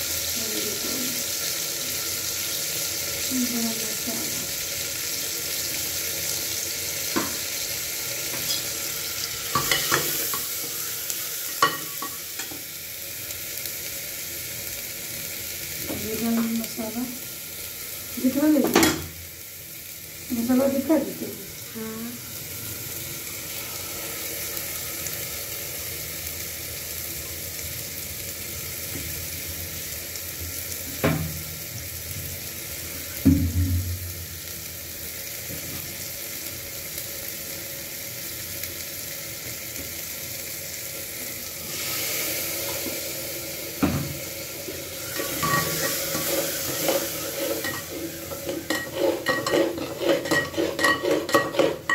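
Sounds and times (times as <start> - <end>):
food sizzling in hot oil: 0.0 - 51.9
steel bowl scraping pot rim: 45.1 - 51.9
ladle clinking against pot: 47.6 - 51.9.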